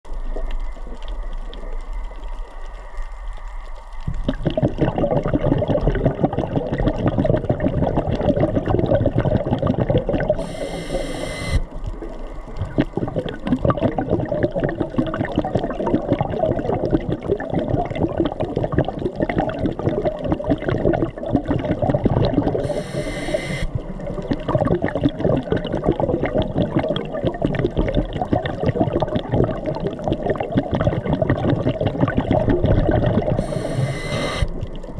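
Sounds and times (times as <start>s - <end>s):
underwater crackling and rushing water: 0.1s - 34.9s
brief hissing bursts: 22.6s - 23.7s, 33.4s - 34.5s.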